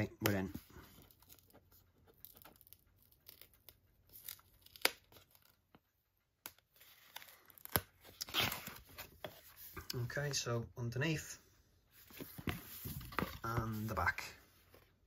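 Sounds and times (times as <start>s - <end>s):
cardboard crackling and scraping: 11.9s - 14.9s.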